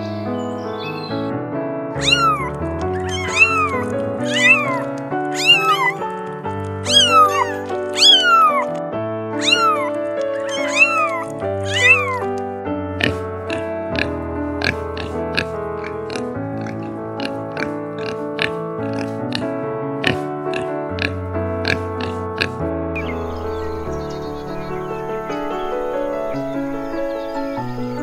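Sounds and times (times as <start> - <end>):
background music with held notes: 0.0 - 28.0
cat meowing: 2.0 - 6.1, 6.8 - 8.8, 9.4 - 12.3.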